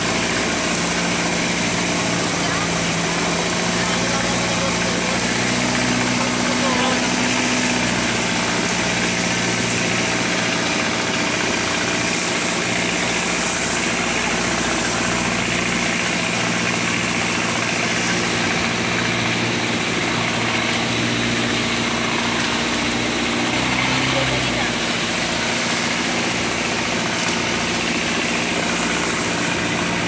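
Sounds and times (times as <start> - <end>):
boat engine droning: 0.0 - 30.0.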